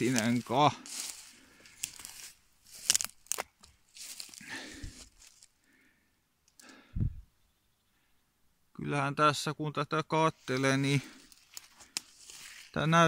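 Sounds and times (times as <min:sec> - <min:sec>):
footsteps crunching dry leaves: 0:00.0 - 0:05.5, 0:10.4 - 0:13.0
twigs snapping: 0:00.0 - 0:05.5, 0:11.1 - 0:12.7.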